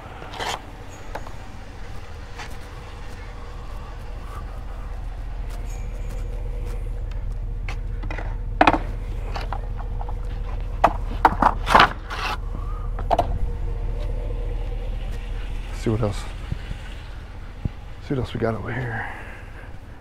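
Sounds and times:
steady low rumble: 0.0 - 20.0
skateboards clattering on metal trailer: 8.0 - 9.6, 10.8 - 12.4.

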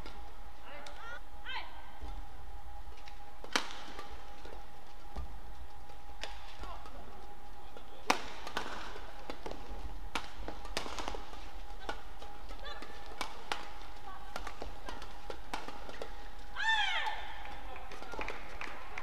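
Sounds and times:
rackets hitting shuttlecock: 0.0 - 1.0, 3.0 - 18.7
faint steady hum: 0.0 - 19.0.

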